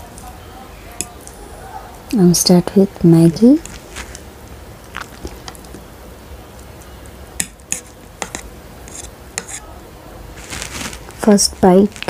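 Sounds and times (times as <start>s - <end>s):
fork scraping a plate: 7.4s - 9.6s
fork stirring noodles: 7.4s - 9.7s.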